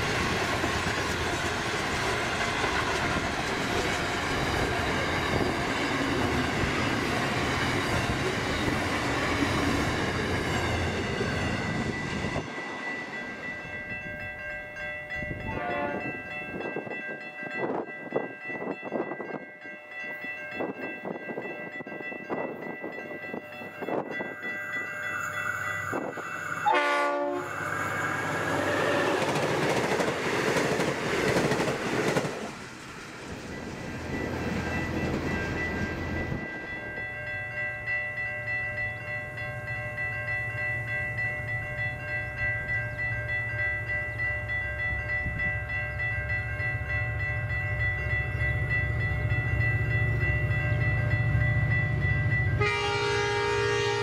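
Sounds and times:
train engines droning: 0.0 - 54.0
train passing: 0.0 - 54.0
high-pitched steady tones: 3.8 - 30.0
train horn blast: 15.4 - 16.2, 26.6 - 27.7, 52.6 - 54.0.

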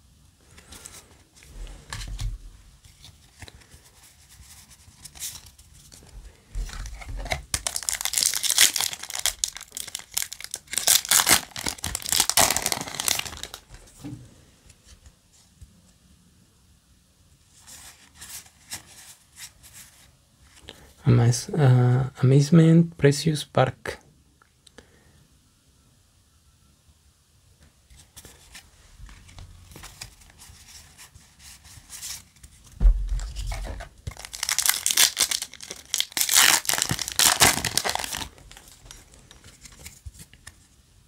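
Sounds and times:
foil wrapper tearing and crinkling: 6.9 - 13.6, 33.2 - 39.1.

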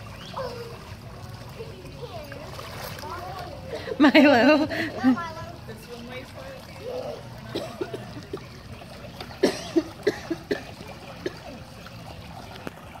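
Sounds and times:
child splashing pool water: 0.0 - 13.0.

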